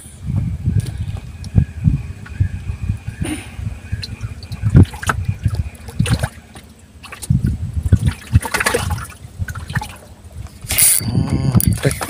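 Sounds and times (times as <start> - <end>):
water lapping against a boat: 0.0 - 11.0, 11.6 - 12.0.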